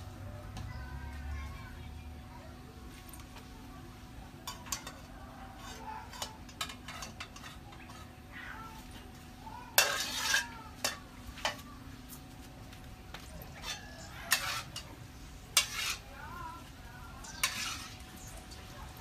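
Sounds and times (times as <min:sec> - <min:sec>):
utensil stirring in a pot: 0:04.4 - 0:08.9, 0:09.7 - 0:11.6, 0:13.2 - 0:19.0.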